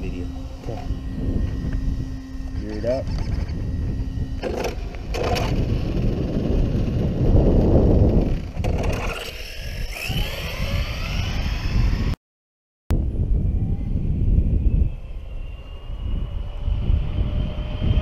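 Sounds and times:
electric motor whine: 0.0 - 12.2, 13.2 - 18.0
tyre and wind rumble: 0.7 - 12.2.

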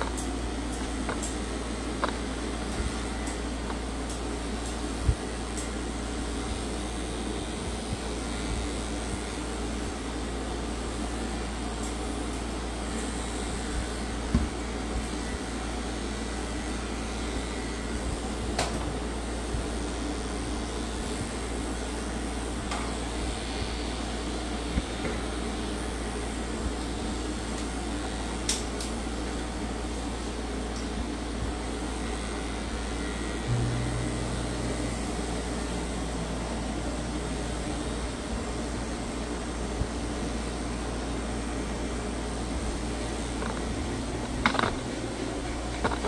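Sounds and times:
machine whirring: 32.8 - 40.0, 41.0 - 46.0.

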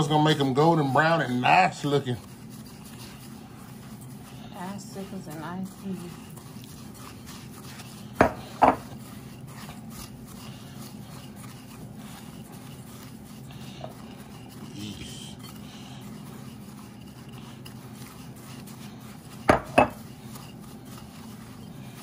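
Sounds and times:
spatula scraping crumbs in glass bowl: 0.0 - 22.0
steady low hum: 0.0 - 22.0.

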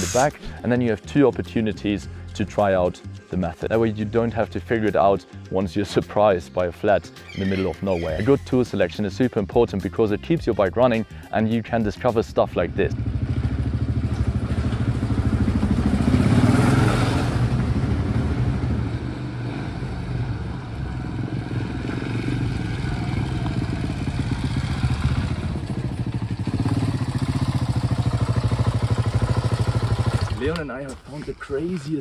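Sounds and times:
motorcycle engine running: 12.7 - 30.6.

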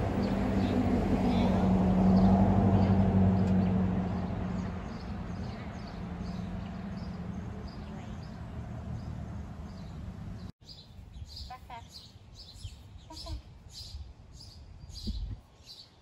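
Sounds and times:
vehicle engine hum on road: 0.0 - 10.6.

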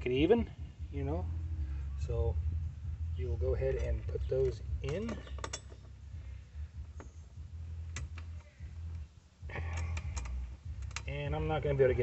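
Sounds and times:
steady low rumble: 0.0 - 12.0
metal bracket clicking on plastic: 4.8 - 5.9, 9.7 - 11.1.

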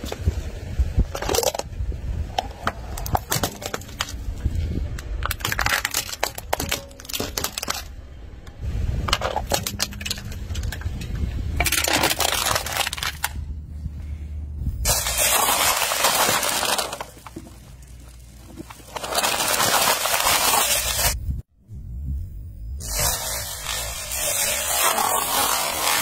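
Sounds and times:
objects crushed under car tyre: 2.6 - 8.0, 9.0 - 13.4, 14.8 - 21.2
tyre rumble on asphalt: 14.8 - 21.2.

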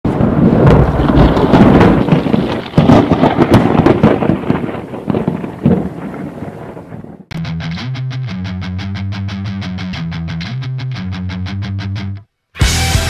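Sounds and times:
thunder rumbling and cracking: 0.1 - 7.4.

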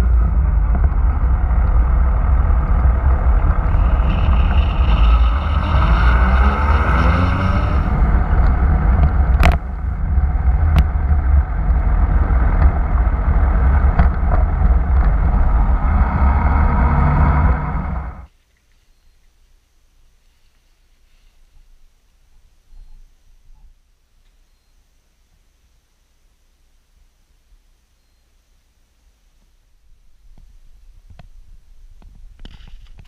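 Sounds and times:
motorcycle engine accelerating: 0.0 - 18.3
wind rumble on microphone: 0.0 - 18.3, 29.8 - 33.0.

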